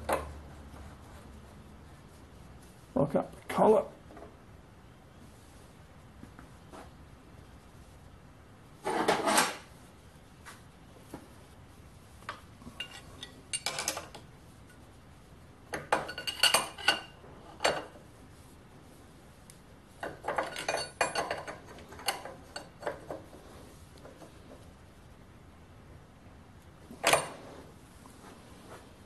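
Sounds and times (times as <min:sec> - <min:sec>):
metal spanners clinking on lathe: 0:20.2 - 0:22.9.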